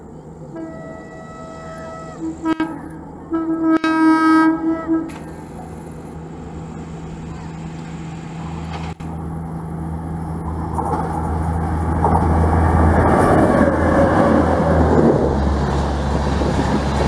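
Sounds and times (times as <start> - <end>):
train passing at speed: 0.0 - 17.0
steady low hum: 4.4 - 13.9.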